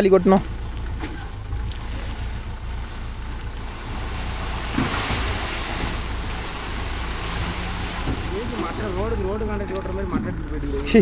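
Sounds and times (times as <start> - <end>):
diesel engine droning: 0.0 - 11.0
soil dumping hiss: 1.8 - 9.3.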